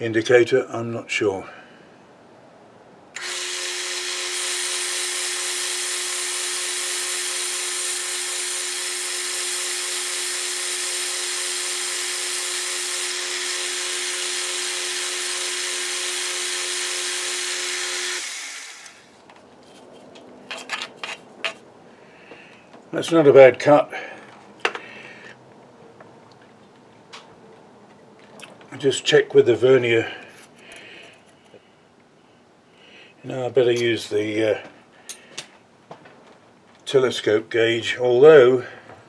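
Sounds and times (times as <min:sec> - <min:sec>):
metal lathe whining: 0:03.2 - 0:19.0
brush scraping metal chips: 0:19.5 - 0:21.6.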